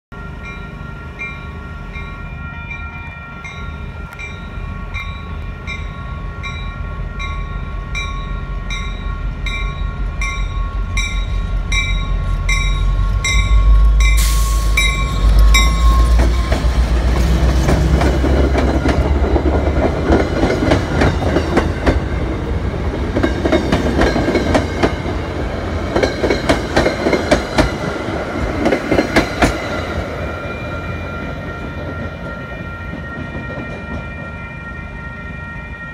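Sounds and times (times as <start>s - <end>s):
diesel locomotive engine: 0.1s - 35.9s
railroad crossing bell: 0.1s - 35.9s
train wheels clickety-clack: 13.4s - 30.2s.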